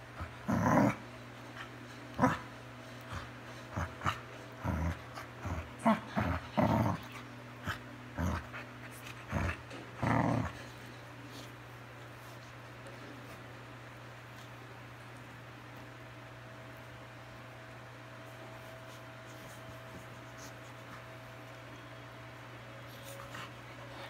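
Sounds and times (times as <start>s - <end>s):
dogs play growling: 0.0s - 15.9s.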